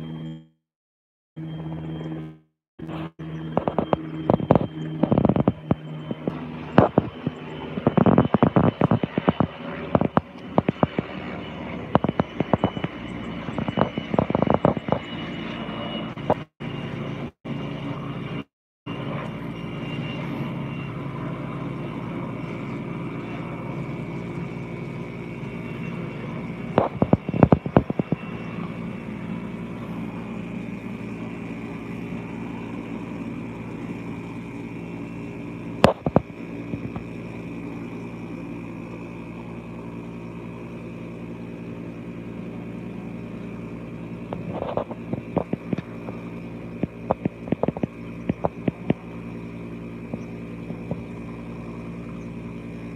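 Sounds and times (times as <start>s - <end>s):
helicopter engine and rotor whine: 0.0s - 0.6s, 1.4s - 52.9s.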